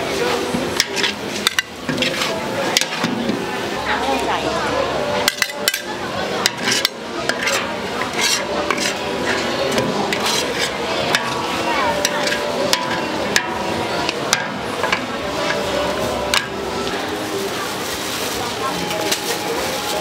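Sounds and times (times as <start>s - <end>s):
metal spatula scraping a pan: 0.8s - 3.2s, 5.2s - 13.7s.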